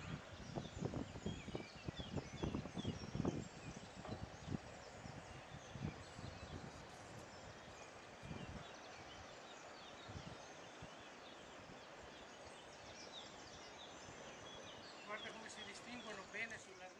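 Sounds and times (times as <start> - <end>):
low thumps on microphone: 0.0 - 4.6
small birds chirping: 0.0 - 16.9.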